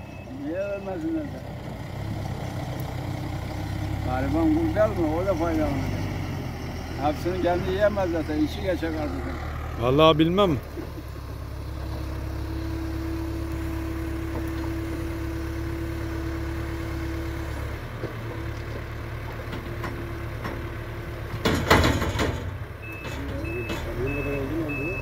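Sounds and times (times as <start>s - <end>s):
reversing beeper: 0.0s - 1.0s, 22.8s - 25.0s
diesel engine whining: 0.0s - 25.0s.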